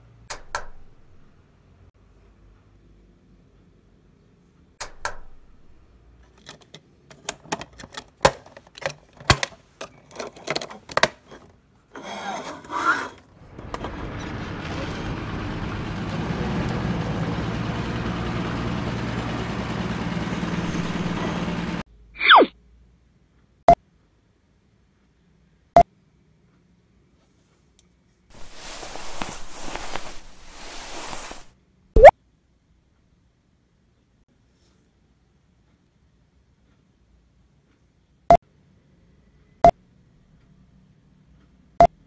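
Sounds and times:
engine-like hum: 12.6 - 22.1, 28.3 - 31.5.

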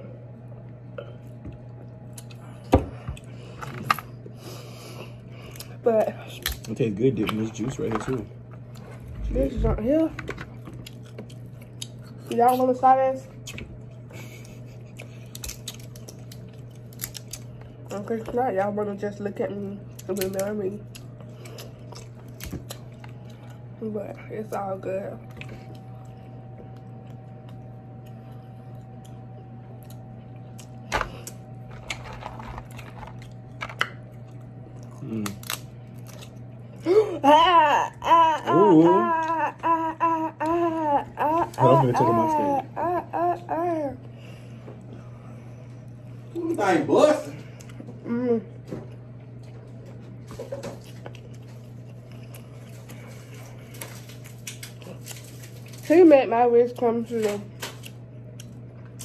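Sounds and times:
steady low hum: 0.0 - 59.0
close chewing with wet clicks: 10.7 - 12.8, 14.8 - 17.9, 19.9 - 23.6, 25.3 - 31.4, 50.8 - 55.6
crab legs cracking: 15.0 - 17.7, 30.6 - 36.5, 53.7 - 55.9.

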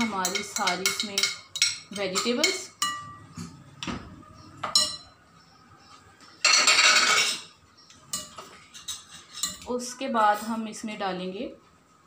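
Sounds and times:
dish and spoon clinking on bowl: 0.0 - 4.0, 4.6 - 5.2, 6.4 - 7.5, 8.1 - 9.7.

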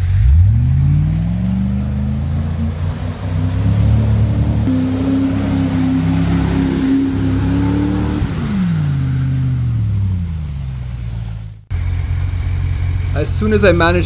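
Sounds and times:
engine revving hard: 0.0 - 11.1
truck churning through mud: 0.0 - 14.0.

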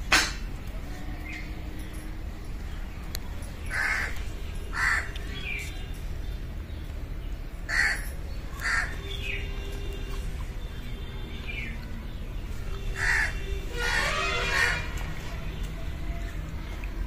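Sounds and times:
crow cawing: 3.7 - 4.1, 4.7 - 5.1, 7.7 - 8.0, 8.6 - 8.9, 13.0 - 14.8.

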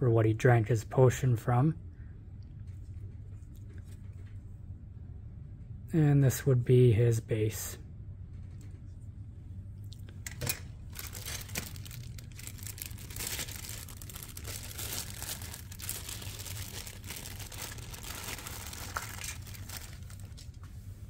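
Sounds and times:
plastic packaging crinkling: 10.8 - 20.7.

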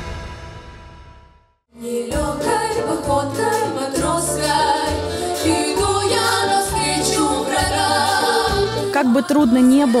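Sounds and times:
female vocal group singing: 1.8 - 10.0
big band playing: 2.1 - 10.0.

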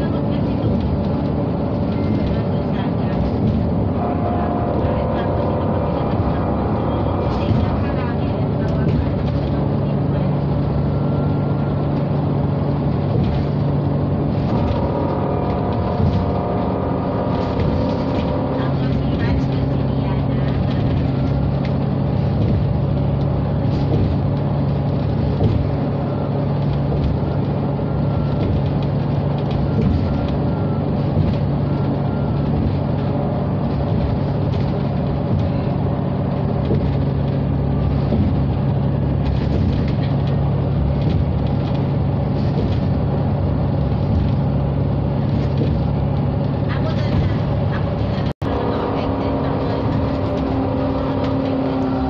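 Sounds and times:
bus engine hum: 0.0 - 52.0
road and tyre noise: 0.0 - 52.0.

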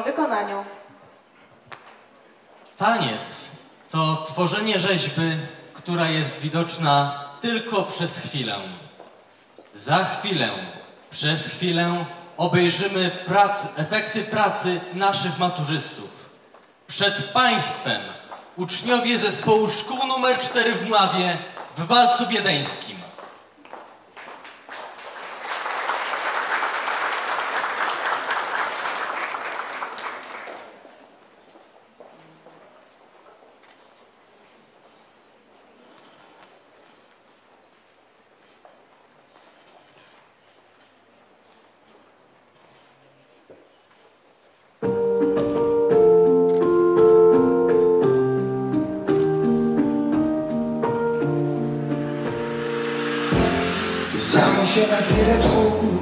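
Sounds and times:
audience applauding: 24.1 - 31.0
slow piano waltz: 44.8 - 52.9.

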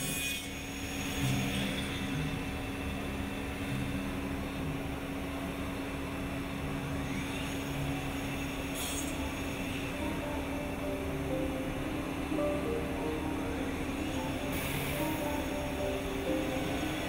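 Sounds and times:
constant hum: 0.0 - 17.0
milling spindle drone: 0.0 - 17.0
faint rising whine: 9.2 - 17.0.

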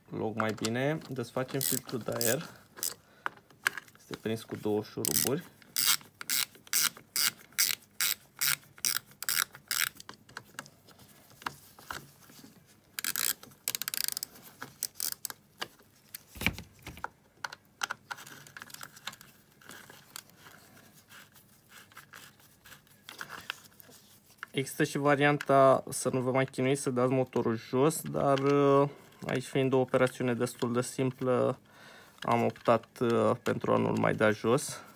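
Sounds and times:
plastic parts scraping and clicking: 0.3 - 34.9
ratchet screwdriver clicking: 5.0 - 10.0, 13.0 - 14.3.

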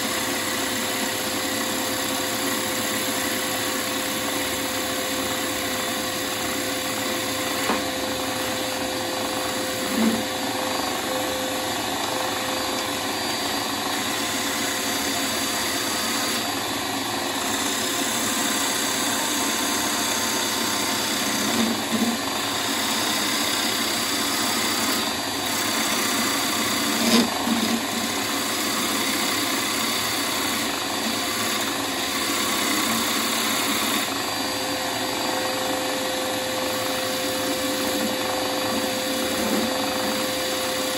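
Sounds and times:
wood lathe cutting hiss: 0.0 - 40.9.

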